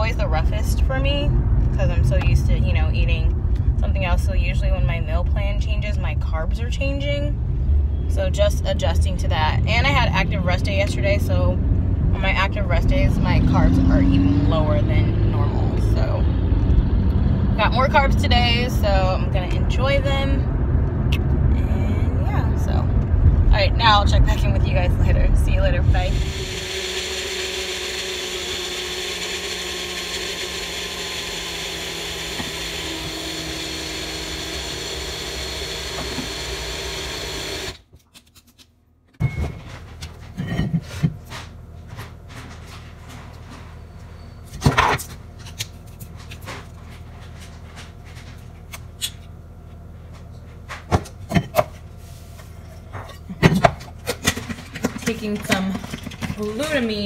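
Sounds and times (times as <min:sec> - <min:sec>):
personal blender running: 0:25.6 - 0:37.8.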